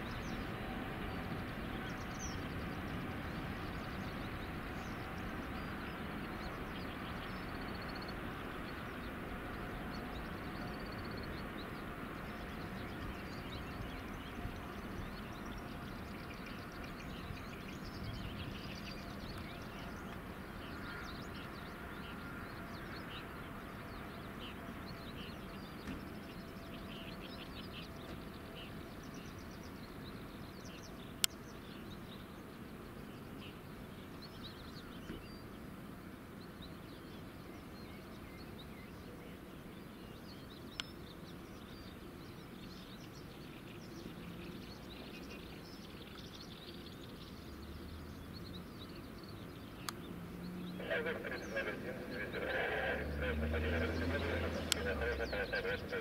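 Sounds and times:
small birds chirping: 0.0s - 56.0s
distant jet engines rumbling: 47.0s - 56.0s.

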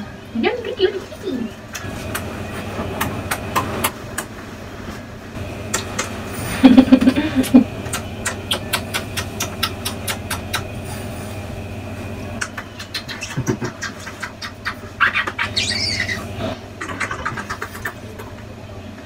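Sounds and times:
low hum: 0.0s - 19.0s
wet kissing smacks: 5.7s - 6.2s, 7.8s - 10.7s, 12.4s - 14.8s.

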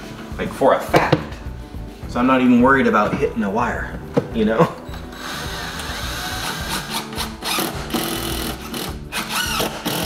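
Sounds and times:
cordless drill driving screws: 5.0s - 10.0s.

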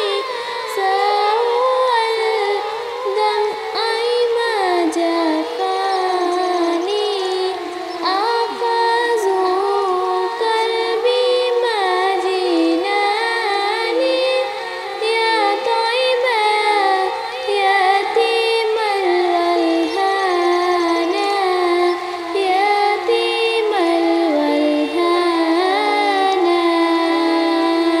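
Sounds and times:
woman singing devotional song: 0.0s - 28.0s.

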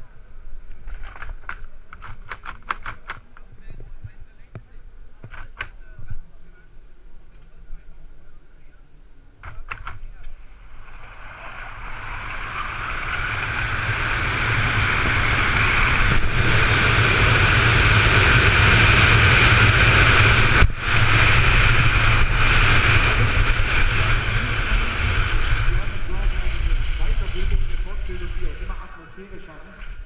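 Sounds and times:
wind rushing over helmet: 10.5s - 29.0s.

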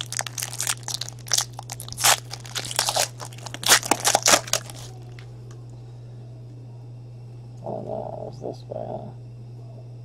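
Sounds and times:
plastic wrapper crinkling: 0.0s - 5.2s.

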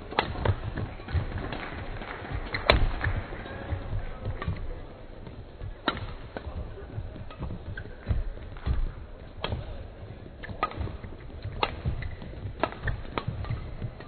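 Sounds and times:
footsteps on court: 0.0s - 14.0s
rackets striking shuttlecock: 0.1s - 6.6s, 10.4s - 14.0s.

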